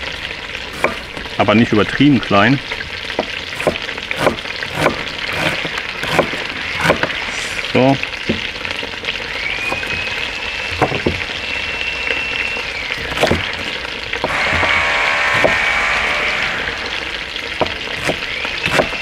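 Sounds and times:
chicken sizzling in a pot: 0:00.0 - 0:19.0
knife chopping on wooden board: 0:00.8 - 0:01.0, 0:03.2 - 0:07.1, 0:13.0 - 0:13.5, 0:14.2 - 0:15.7, 0:17.6 - 0:19.0
power drill whining: 0:14.2 - 0:17.2.

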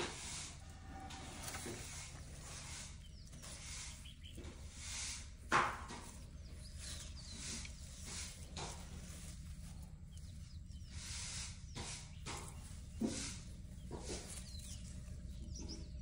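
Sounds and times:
rustling and hissing of leaves: 0:00.0 - 0:16.0.

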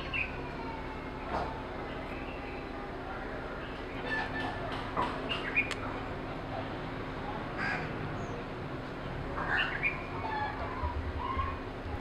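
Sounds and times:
birds cawing: 0:00.0 - 0:01.2, 0:07.6 - 0:08.0, 0:09.4 - 0:11.6.

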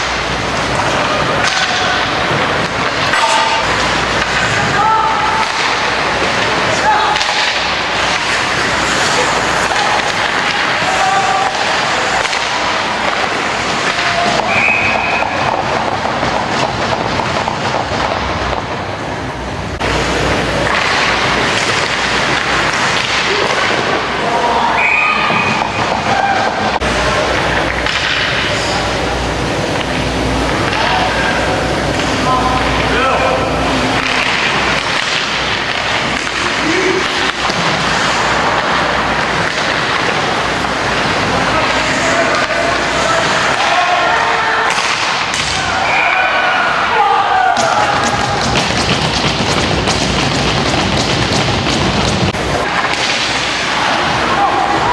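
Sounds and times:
crowd and skating noise: 0:00.0 - 0:54.9
short referee whistle: 0:14.5 - 0:15.3, 0:24.8 - 0:25.6.

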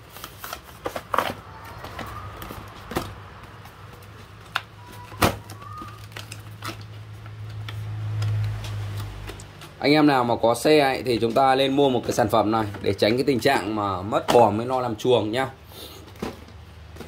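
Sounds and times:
packaging handled: 0:00.0 - 0:09.8.

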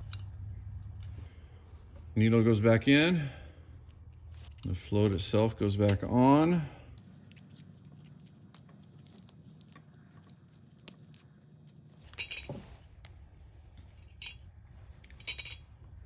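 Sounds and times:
metal parts clicking and clinking: 0:00.0 - 0:01.3, 0:06.9 - 0:13.2, 0:13.8 - 0:15.9.

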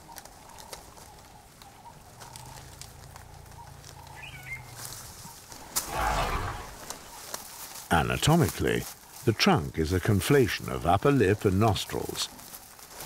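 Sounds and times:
faint scattered clicks: 0:00.0 - 0:05.6
small bird chirping: 0:03.5 - 0:05.4
loud rushing noise: 0:05.8 - 0:07.0.

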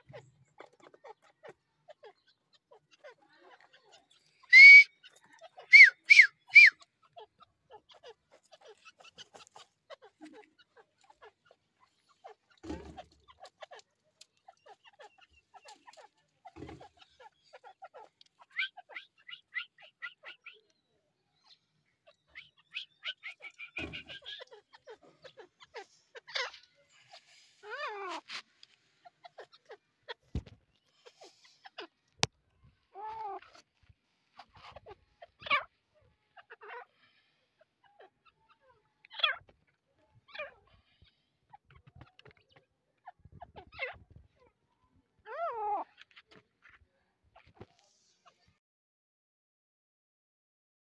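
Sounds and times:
bird chirping: 0:00.0 - 0:33.6.

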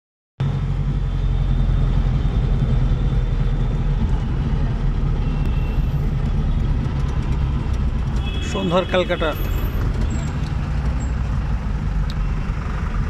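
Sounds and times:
car engine and road rumble: 0:00.4 - 0:13.0.

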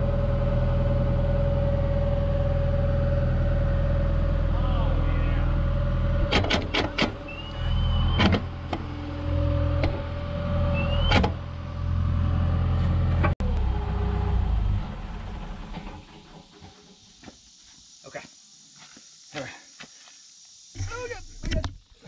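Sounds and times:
excavator diesel engine running: 0:00.0 - 0:17.0
hydraulics working: 0:03.7 - 0:11.8
short rising squeals: 0:07.1 - 0:11.5.

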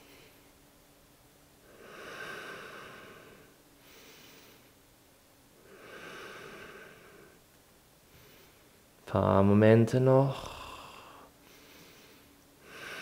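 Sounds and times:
slow deep breathing: 0:00.0 - 0:00.5, 0:01.6 - 0:04.8, 0:05.6 - 0:07.4, 0:08.1 - 0:08.9, 0:10.3 - 0:13.0.

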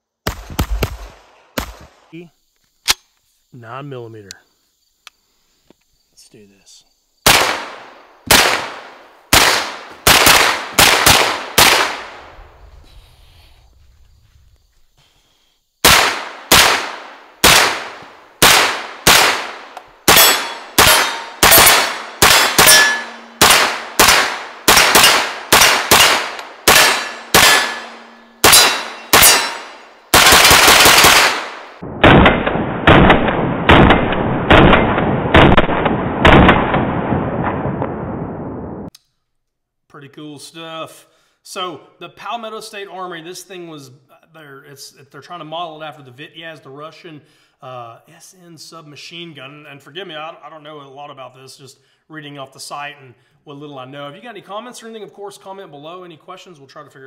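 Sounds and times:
gunshots: 0:00.2 - 0:02.1, 0:07.2 - 0:12.4, 0:15.8 - 0:38.3
bullets ringing on steel targets: 0:20.1 - 0:24.2, 0:24.8 - 0:29.9.

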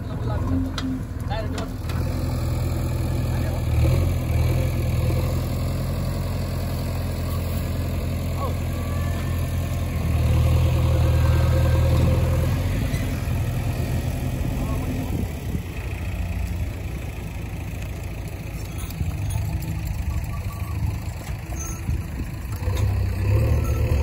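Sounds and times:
diesel engine idling: 0:00.0 - 0:24.0.

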